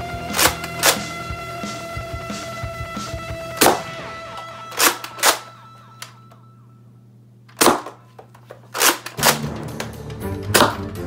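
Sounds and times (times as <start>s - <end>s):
background music: 0.0s - 6.8s, 9.2s - 11.0s
toy blaster plastic snaps: 8.8s - 9.4s.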